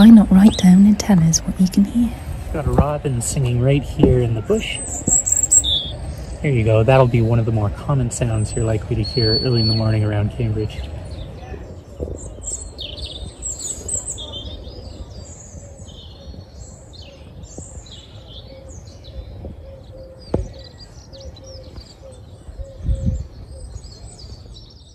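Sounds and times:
low background rumble: 0:00.0 - 0:15.5
songbirds singing: 0:00.0 - 0:24.9
thump: 0:20.3 - 0:20.6.

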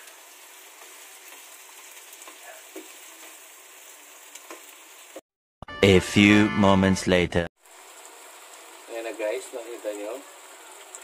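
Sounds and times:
vegetables sizzling in a frying pan: 0:00.0 - 0:05.2, 0:07.6 - 0:11.0
narrator speaking: 0:05.6 - 0:07.5.

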